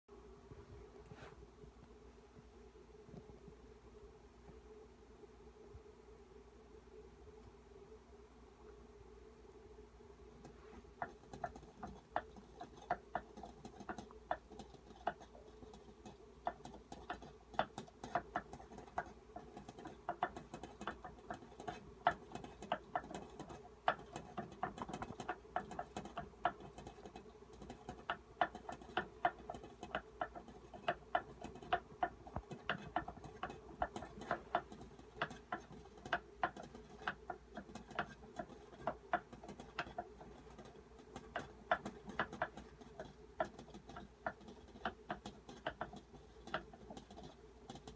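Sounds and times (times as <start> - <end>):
rabbit licking its fur: 10.4 - 47.9.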